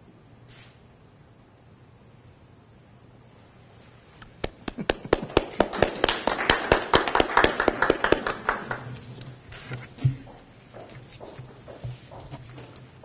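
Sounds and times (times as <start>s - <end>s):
people clapping: 4.2s - 9.5s.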